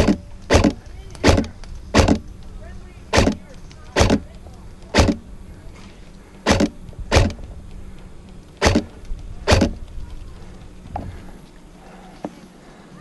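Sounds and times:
airsoft rifle shots: 0.0s - 2.3s, 3.1s - 5.3s, 6.4s - 7.4s, 8.5s - 9.9s.

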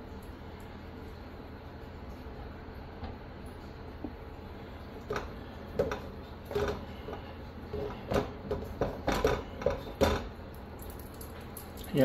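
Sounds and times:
dough knocking in metal bowl: 5.0s - 10.4s.

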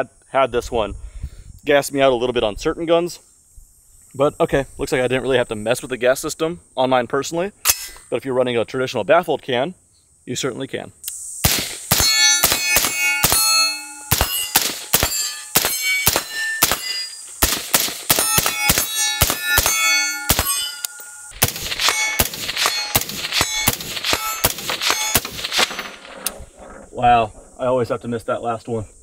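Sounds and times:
suppressed rifle rapid fire: 11.4s - 13.4s, 14.1s - 16.8s, 17.4s - 19.7s, 21.4s - 26.4s
steel targets ringing: 11.5s - 26.3s.

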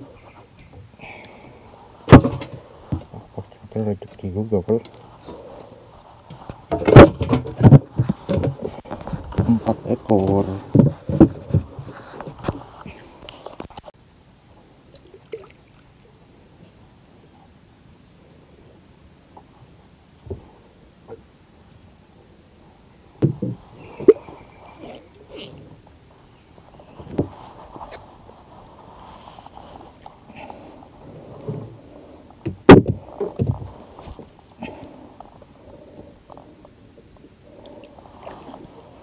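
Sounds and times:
high-pitched insect chorus: 0.0s - 39.0s
fishing gear knocking in boat: 2.1s - 3.5s, 6.6s - 12.0s, 23.2s - 24.2s, 32.4s - 33.8s.

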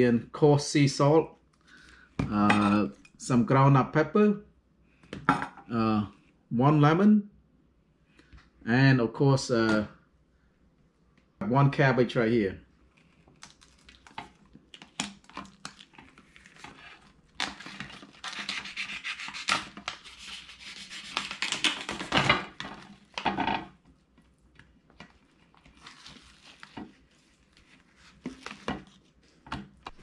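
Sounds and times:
plastic film crinkling: 12.9s - 18.7s, 24.8s - 30.0s.

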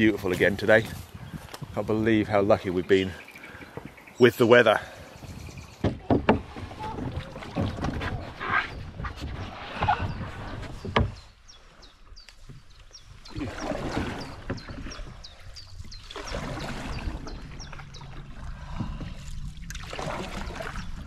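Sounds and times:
canoe paddle splashing in water: 5.8s - 11.4s, 12.6s - 21.0s.

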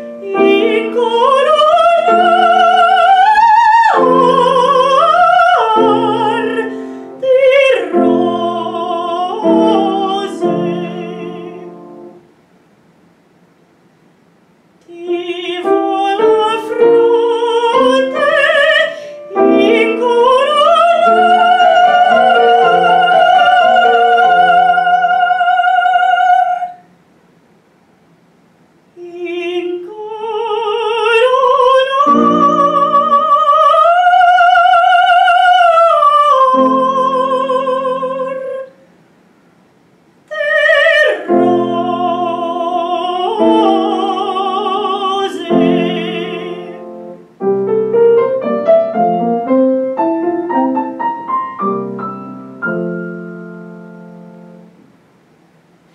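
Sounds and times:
woman singing operatically: 0.0s - 12.1s, 14.8s - 26.8s, 29.0s - 38.8s, 40.3s - 47.2s
piano accompaniment: 0.0s - 12.2s, 14.9s - 26.5s, 30.6s - 38.7s, 40.5s - 55.0s.

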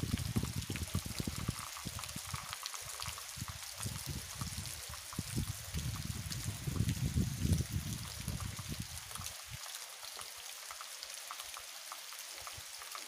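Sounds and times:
wind buffeting microphone: 0.0s - 2.5s, 3.3s - 9.1s.

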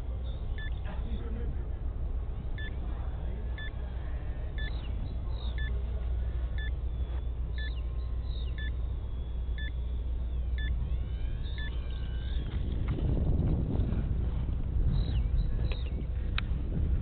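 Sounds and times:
birds chirping: 0.0s - 13.5s, 14.6s - 16.5s
two-tone electronic beep: 2.6s - 2.8s, 4.6s - 5.7s, 7.6s - 7.8s, 8.5s - 8.8s, 9.6s - 9.8s, 10.6s - 10.8s, 11.4s - 11.8s
wind on microphone: 10.2s - 17.0s.

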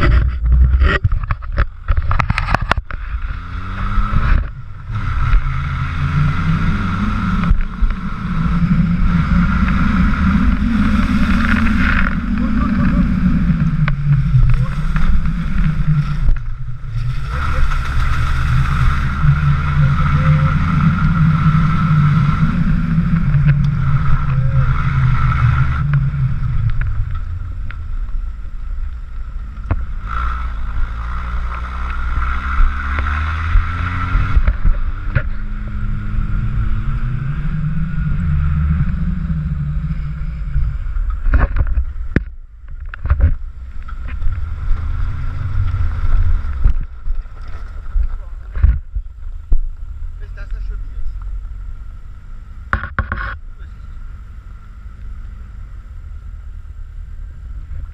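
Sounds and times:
wind buffeting microphone: 0.0s - 28.6s
car engine running: 0.0s - 57.9s.

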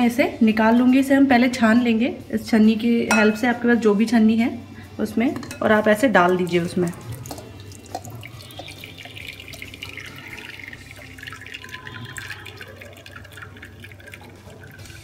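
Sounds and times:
jar clinking: 3.1s - 3.6s
juice pouring into a strainer: 6.4s - 15.0s.

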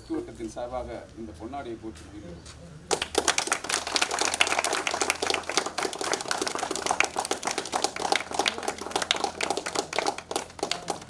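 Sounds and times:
crowd clapping: 2.9s - 11.0s.

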